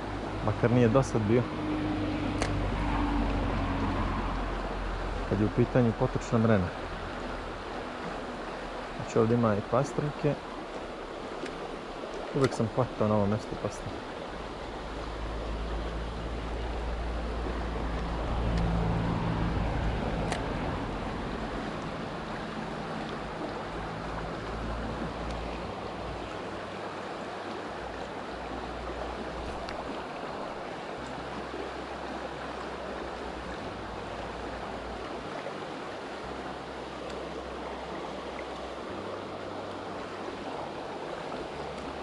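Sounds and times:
river running over stones: 0:00.0 - 0:42.0.

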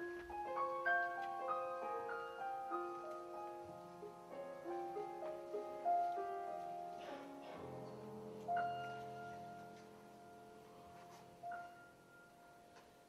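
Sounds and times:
grand piano broken chords: 0:00.0 - 0:13.0.

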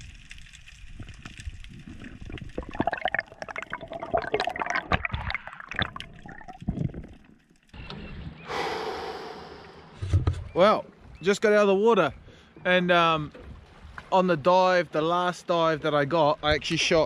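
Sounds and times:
small crackling clicks: 0:00.0 - 0:02.8, 0:06.0 - 0:08.0
underwater water movement and bubbling: 0:00.0 - 0:07.8.

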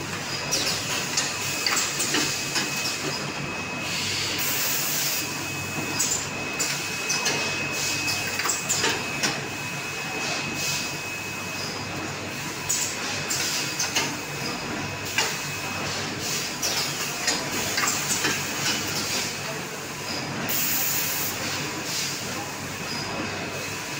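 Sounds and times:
conveyor clacks and clatter: 0:00.0 - 0:03.6, 0:05.6 - 0:09.5, 0:11.7 - 0:20.6.

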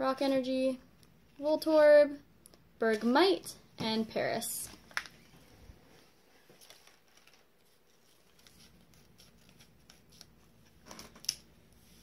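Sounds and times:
plastic pack clicks and rustles: 0:04.7 - 0:05.3, 0:06.6 - 0:07.5.

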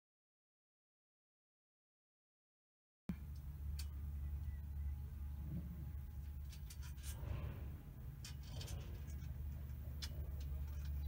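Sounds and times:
steady low hum: 0:03.1 - 0:11.0.

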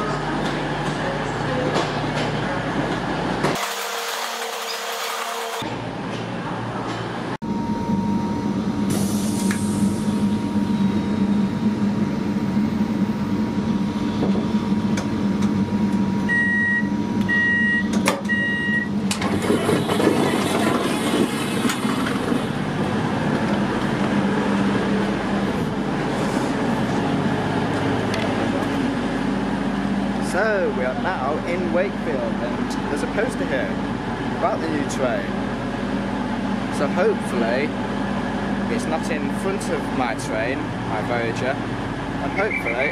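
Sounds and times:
diesel train humming: 0:00.0 - 0:42.9
train door beeps: 0:07.4 - 0:09.9, 0:16.2 - 0:21.8, 0:42.3 - 0:42.9
train door opening: 0:17.8 - 0:24.3.

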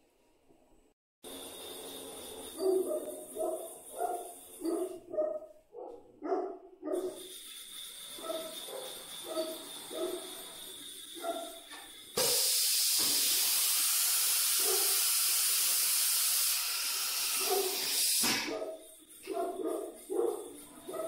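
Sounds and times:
loud steady hiss: 0:12.2 - 0:18.5.

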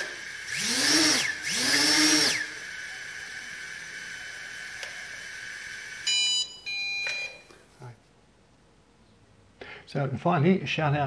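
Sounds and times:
drone motors whining: 0:00.0 - 0:06.2.

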